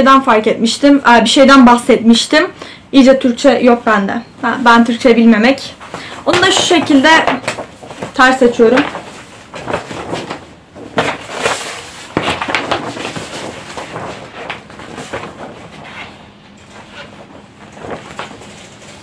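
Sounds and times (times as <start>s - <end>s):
paper crackling rustles: 5.8s - 19.0s.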